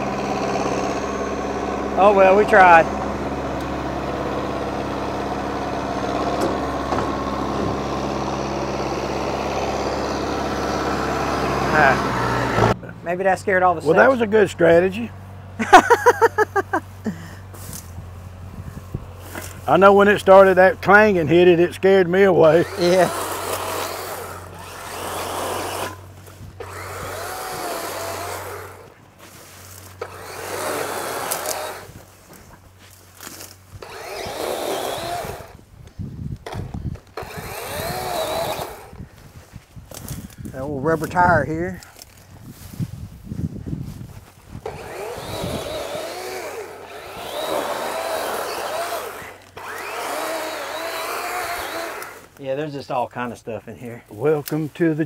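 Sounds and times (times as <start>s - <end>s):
diesel tractor idling: 0.0s - 35.7s
dry brush rustling and crackling: 16.0s - 20.8s, 22.4s - 55.0s.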